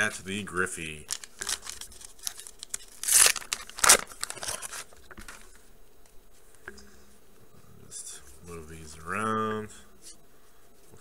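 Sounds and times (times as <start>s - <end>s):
foil wrapper ripping: 1.1s - 5.0s
foil wrapper crinkling: 1.1s - 5.5s.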